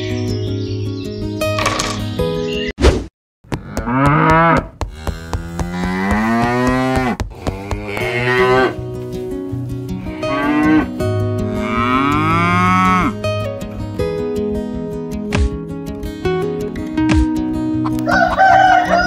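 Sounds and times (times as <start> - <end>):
cattle mooing: 3.5 - 8.8, 10.0 - 13.2
background music: 5.2 - 19.0.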